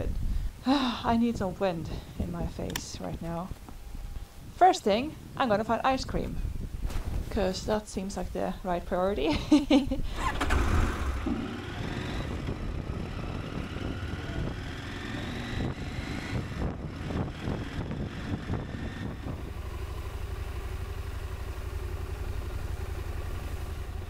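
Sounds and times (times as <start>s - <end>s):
motorcycle engine: 10.0s - 24.0s.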